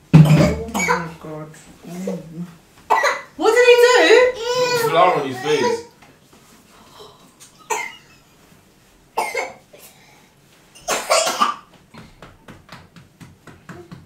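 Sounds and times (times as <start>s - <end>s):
person coughing: 7.7s - 8.0s, 10.8s - 11.6s.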